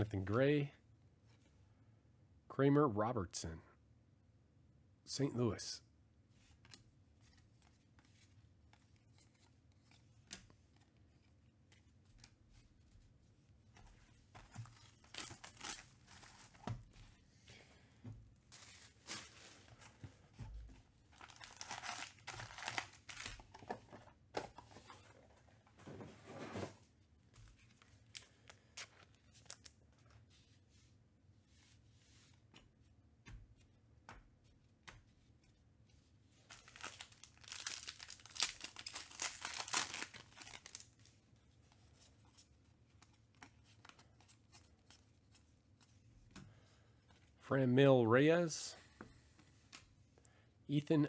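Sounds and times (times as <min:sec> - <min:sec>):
card pack wrappers tearing and crinkling: 0:14.6 - 0:16.6, 0:21.2 - 0:23.7, 0:28.0 - 0:29.8, 0:36.5 - 0:41.1.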